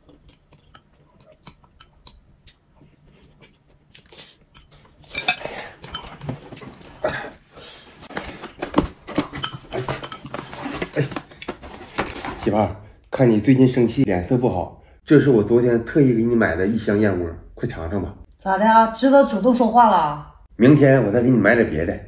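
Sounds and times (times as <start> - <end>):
quiet eating: 0.0 - 8.4
cardboard box rustling and scraping: 8.1 - 12.5.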